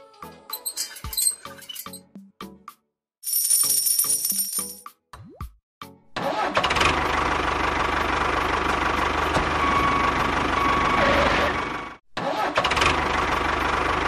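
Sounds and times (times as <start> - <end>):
tractor engine running: 6.3 - 14.0.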